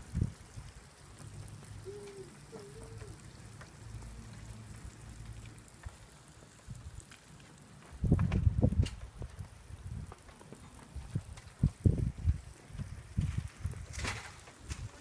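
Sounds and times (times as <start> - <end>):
water spraying from shower head: 0.0 - 8.8.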